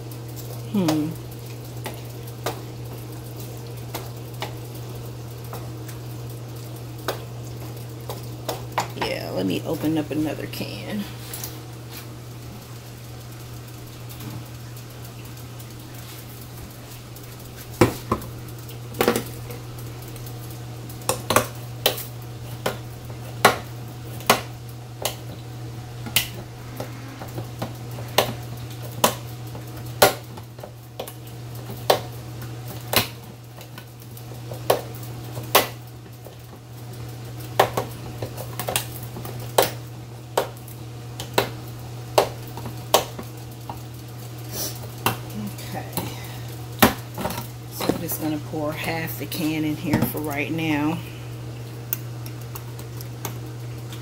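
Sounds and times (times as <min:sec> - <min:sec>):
low hum: 0:23.8 - 0:30.0.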